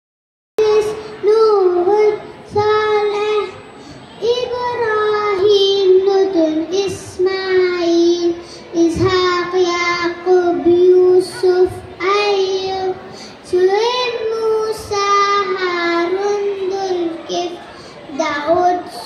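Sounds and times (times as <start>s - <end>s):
girl singing into a microphone: 0.6s - 19.0s.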